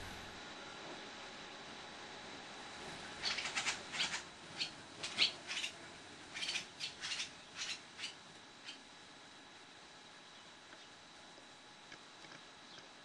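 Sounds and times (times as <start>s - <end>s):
swallows twittering: 3.2s - 8.8s.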